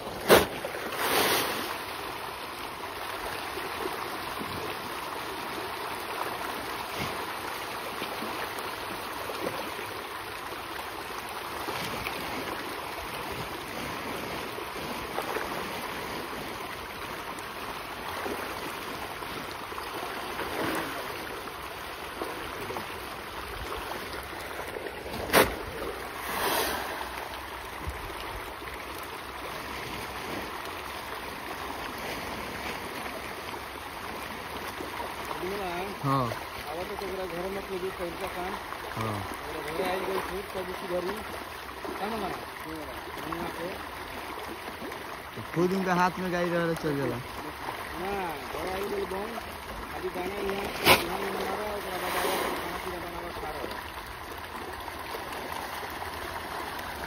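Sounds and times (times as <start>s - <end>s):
fish splashing in water: 0.0s - 57.0s.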